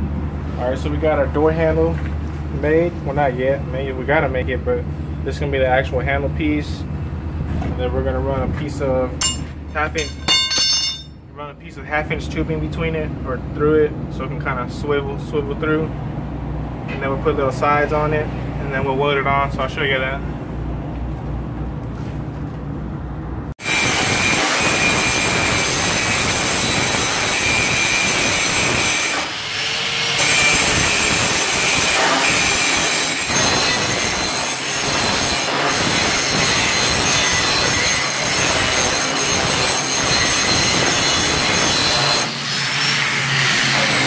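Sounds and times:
angle grinder grinding steel: 9.2 - 11.1, 23.6 - 44.0.

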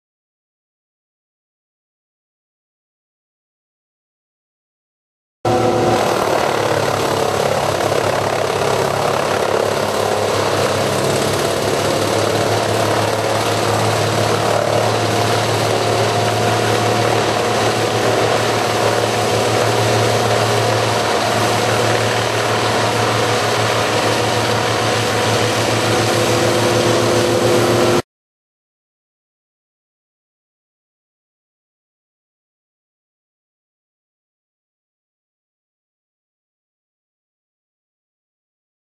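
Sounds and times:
wood chipper chipping trees: 5.5 - 28.0.

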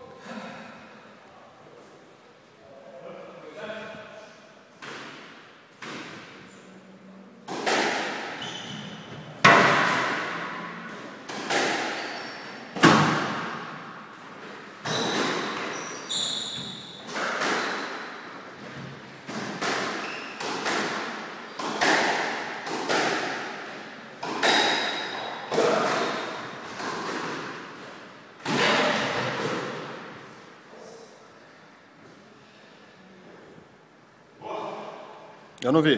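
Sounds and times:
squash ball hits: 7.5 - 12.0, 12.7 - 13.8, 16.6 - 27.7, 28.4 - 30.1
shoe squeaks: 8.4 - 9.1, 11.8 - 12.8, 14.8 - 17.1, 20.0 - 20.4.

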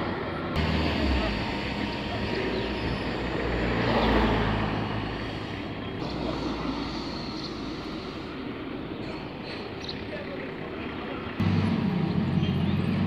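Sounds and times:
street traffic noise: 0.0 - 13.0
vehicle passing close by: 0.6 - 8.5.

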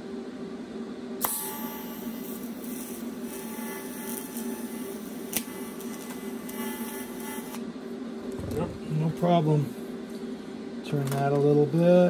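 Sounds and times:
steady low hum: 0.0 - 12.0
welding arc hissing: 1.6 - 7.6.

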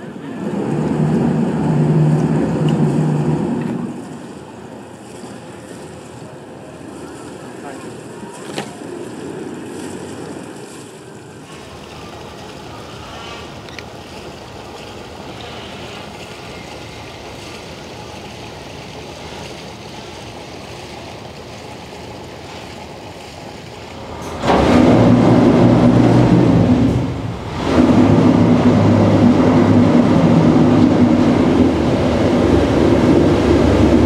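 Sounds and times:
low rumble: 0.0 - 5.8, 23.6 - 34.0
water noise: 0.0 - 34.0
wind: 0.0 - 34.0.

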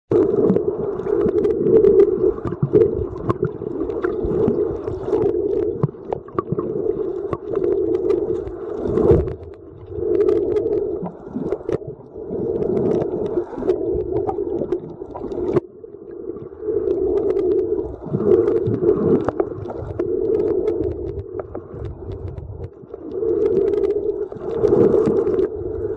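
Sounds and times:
small underwater clicks: 0.1 - 15.7, 16.4 - 25.9
muffled underwater rushes: 0.1 - 25.9.

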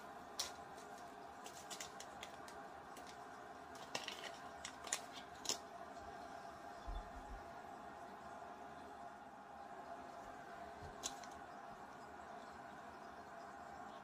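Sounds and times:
foil pouch crinkling: 0.3 - 5.6.

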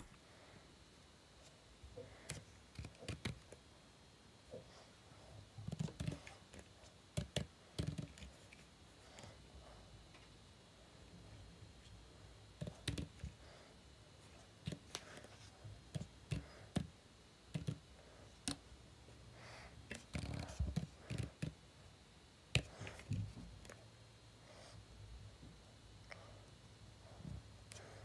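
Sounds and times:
low steady hum: 0.0 - 28.0
keyboard and mouse clicks: 12.6 - 13.2, 17.5 - 17.8.

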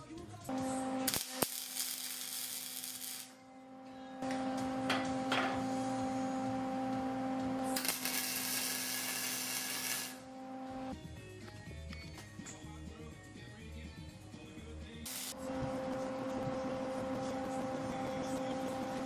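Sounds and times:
arc welding crackling hiss: 1.0 - 3.4, 7.6 - 10.3, 15.1 - 15.7
steady hum: 3.3 - 7.8, 10.1 - 10.9, 15.1 - 19.0.

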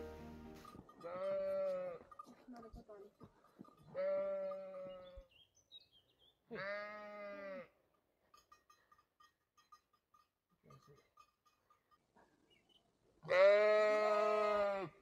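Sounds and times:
sheep bleating: 1.0 - 2.1, 3.9 - 5.2, 6.5 - 7.8, 13.2 - 15.0.

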